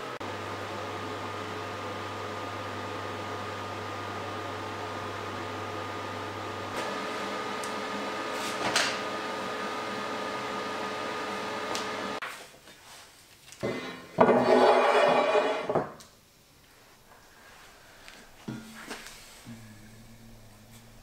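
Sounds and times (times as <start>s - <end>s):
workshop machine hum: 0.0s - 12.2s, 17.1s - 21.0s
steel plate scraping across wood: 13.6s - 15.8s.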